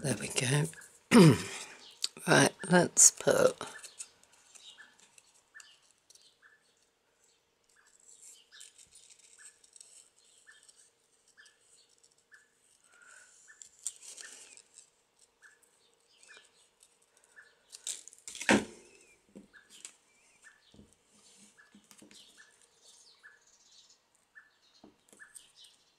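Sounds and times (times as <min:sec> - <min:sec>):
paper rustling: 0:07.7 - 0:15.7.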